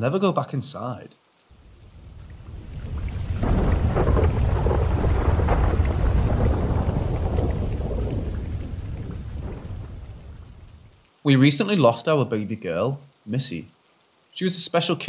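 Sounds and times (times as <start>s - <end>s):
steady rain: 0.0s - 15.0s
rolling thunder rumble: 1.6s - 10.9s.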